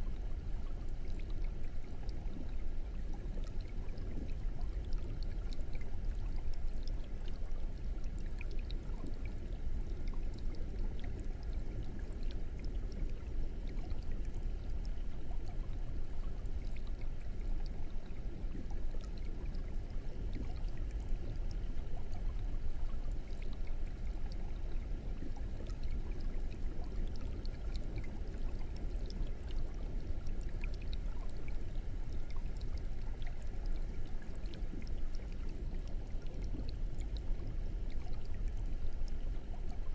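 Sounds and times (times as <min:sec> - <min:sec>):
air stone bubbling in water: 0:00.0 - 0:39.9.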